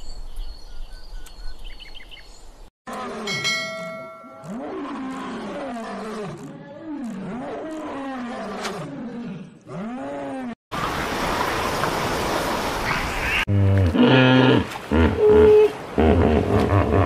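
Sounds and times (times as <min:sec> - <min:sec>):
water splashing: 0:10.7 - 0:13.5.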